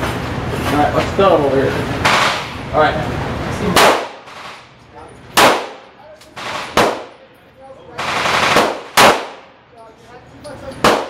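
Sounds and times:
pistol shots echoing indoors: 3.7 - 4.6, 5.4 - 7.2, 7.9 - 9.6, 10.8 - 11.0.

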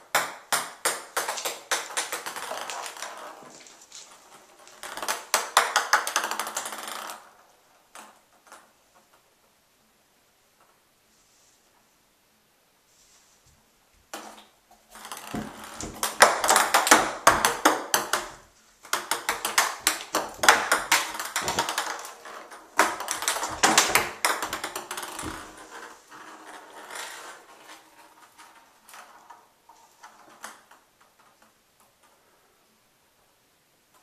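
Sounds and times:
ping pong ball rattling in bathtub: 0.0 - 7.3, 14.1 - 27.4.

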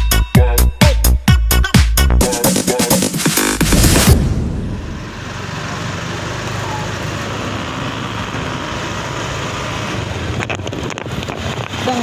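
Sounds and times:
motorcycle engine running: 4.5 - 12.0.

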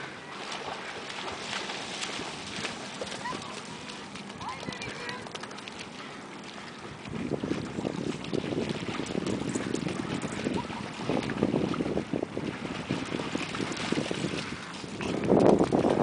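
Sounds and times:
dogs splashing in shallow water: 0.0 - 16.0
wind buffeting microphone: 6.0 - 16.0.

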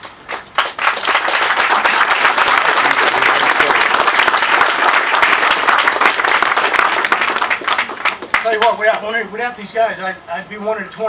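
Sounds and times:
crowd applauding: 0.0 - 8.8.

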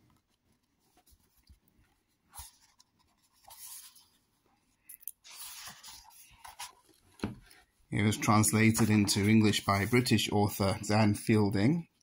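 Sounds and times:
book pages rustling: 0.0 - 11.0.

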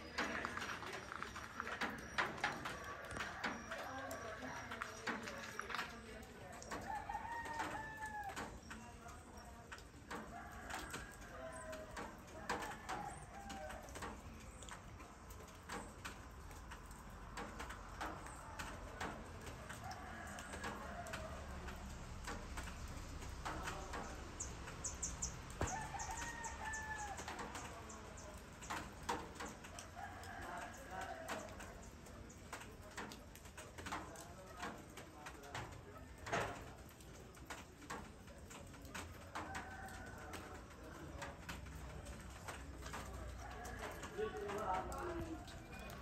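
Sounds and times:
roosters crowing: 1.9 - 4.8, 6.7 - 8.7, 10.1 - 14.2, 18.0 - 22.7, 25.5 - 27.8, 29.4 - 31.9, 39.2 - 40.8, 42.9 - 46.0
small birds chirping: 22.6 - 33.0.

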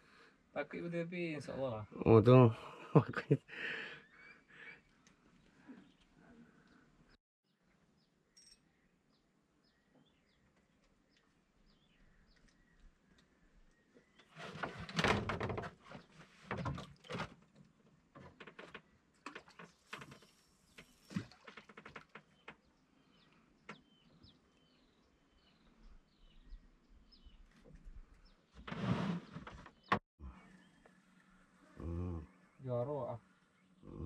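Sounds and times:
bird chirping: 7.5 - 14.3, 22.2 - 28.6
fishing gear handled in wooden boat: 12.3 - 24.6.

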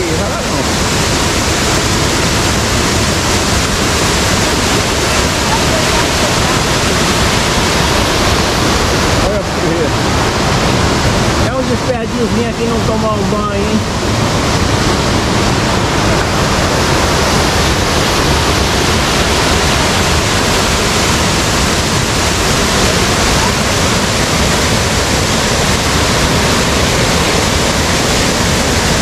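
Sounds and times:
waterfall and stream rapids rushing: 0.0 - 29.0.

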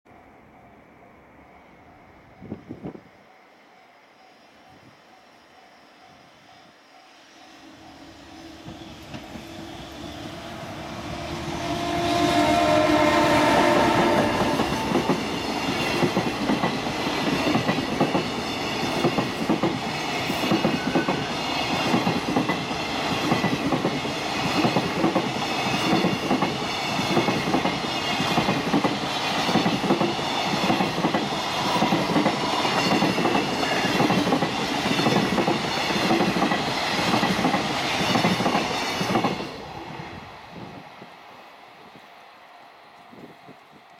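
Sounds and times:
electric locomotive passing: 0.1 - 43.9
train wheels clattering over rail joints: 14.4 - 39.4.

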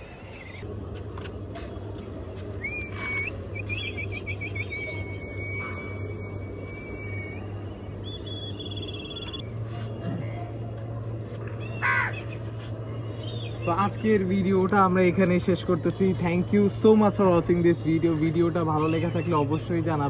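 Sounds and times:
low steady hum: 0.0 - 20.0
kites whistling: 1.6 - 10.5.

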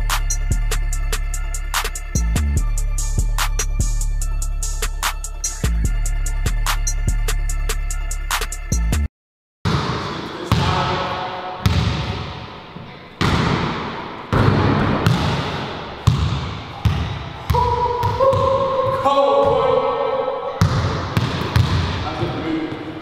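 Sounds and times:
basketball bouncing on hardwood floor: 11.6 - 12.3, 13.2 - 19.6, 20.6 - 22.0.

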